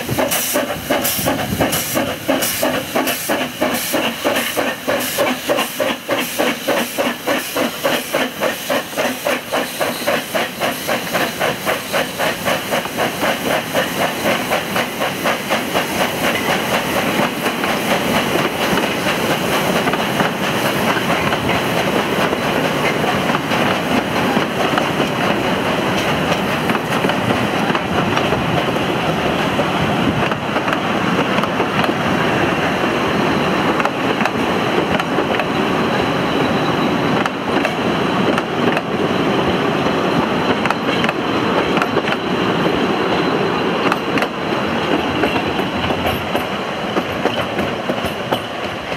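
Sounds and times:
train wheels rumbling and clicking: 0:00.0 - 0:48.9.

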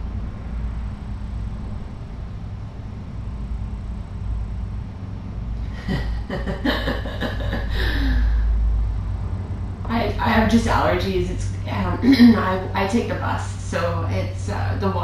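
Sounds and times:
steady low hum: 0:00.0 - 0:15.0
woman laughing: 0:05.7 - 0:08.4, 0:11.9 - 0:12.6.

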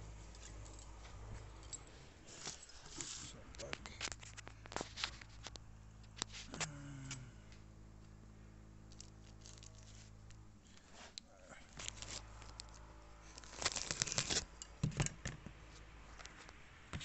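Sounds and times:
low steady hum: 0:00.0 - 0:17.0
plastic bag crinkling: 0:08.9 - 0:10.1, 0:11.7 - 0:14.7.

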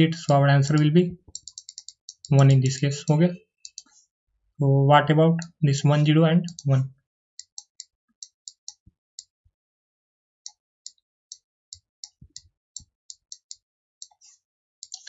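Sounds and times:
mouse buttons clicking: 0:00.7 - 0:02.9, 0:03.6 - 0:04.0, 0:06.5 - 0:06.8, 0:07.4 - 0:09.3.

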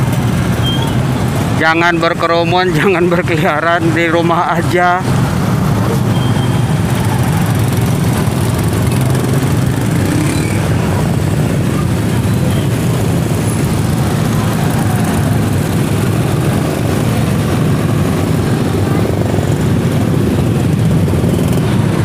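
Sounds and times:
engines in crawling traffic: 0:00.0 - 0:22.0.

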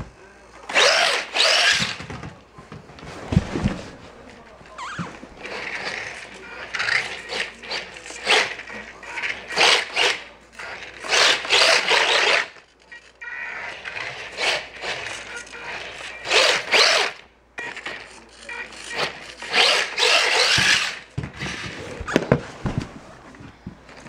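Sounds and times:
small electric motor whining: 0:13.6 - 0:17.2, 0:18.9 - 0:21.8.

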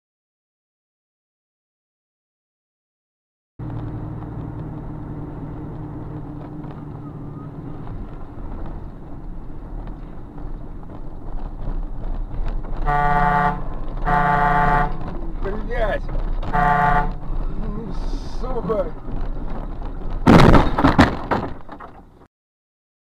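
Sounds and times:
road noise: 0:03.6 - 0:22.3
vehicle running: 0:03.6 - 0:22.3
car horn blasting: 0:12.8 - 0:15.2, 0:16.4 - 0:17.4.

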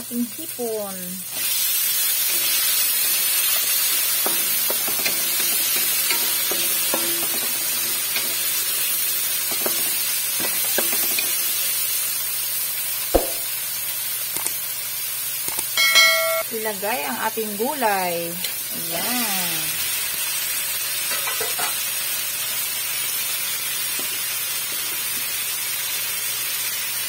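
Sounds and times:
shrimp sizzling in a wok: 0:00.0 - 0:27.0
loud knock: 0:13.2 - 0:13.4.

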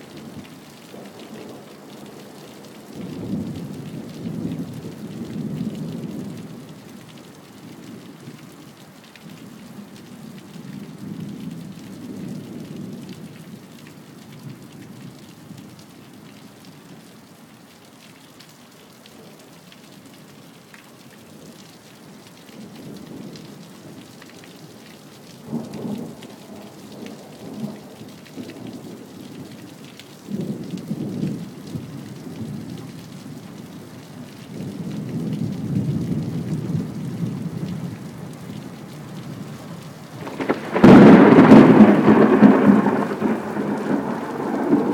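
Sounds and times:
steady rain falling: 0:00.0 - 0:44.9
sharp thunder clap: 0:40.2 - 0:44.9
thunder rumbling: 0:40.2 - 0:44.9.

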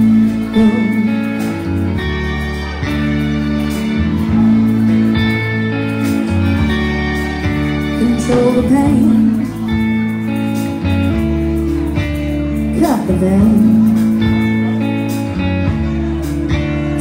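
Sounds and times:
woman singing: 0:00.0 - 0:01.5, 0:08.0 - 0:09.7, 0:12.7 - 0:14.0
drums: 0:00.0 - 0:17.0
electric bass: 0:00.0 - 0:17.0
electric guitar: 0:00.0 - 0:17.0.

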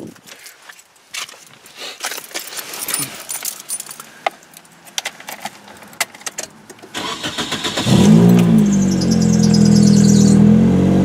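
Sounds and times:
keys jangling: 0:02.0 - 0:06.5
car starter cranking: 0:06.9 - 0:10.4.

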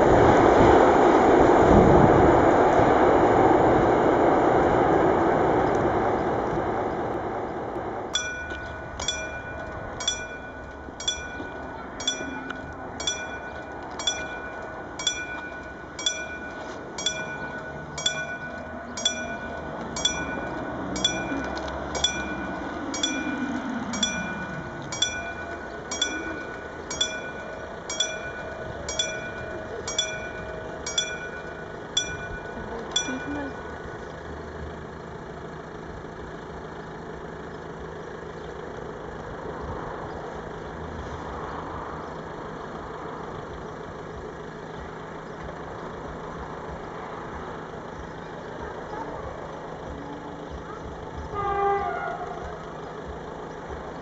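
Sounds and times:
rushing noise: 0:00.0 - 0:34.0
level-crossing warning bell: 0:08.0 - 0:34.3, 0:42.6 - 0:54.0.

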